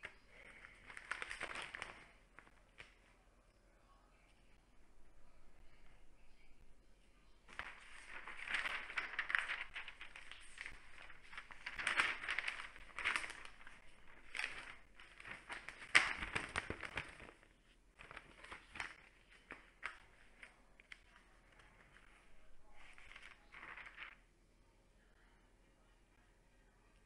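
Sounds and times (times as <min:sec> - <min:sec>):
newspaper pages rustling: 0:00.0 - 0:03.1, 0:07.5 - 0:24.2.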